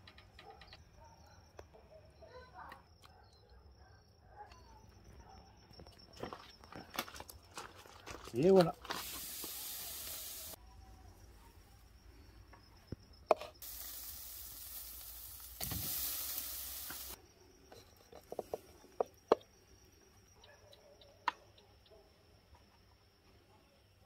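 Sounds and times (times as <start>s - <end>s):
meat sizzling on a grill: 8.8s - 10.6s, 13.6s - 17.2s
sharp clicks and taps: 20.4s - 21.7s.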